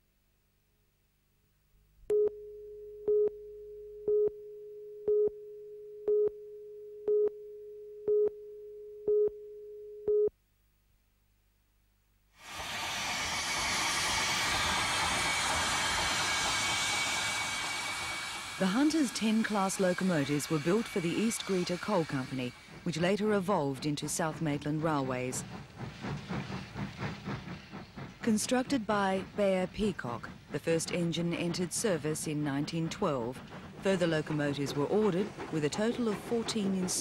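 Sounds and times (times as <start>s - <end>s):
steam hissing from locomotive: 12.4s - 37.0s.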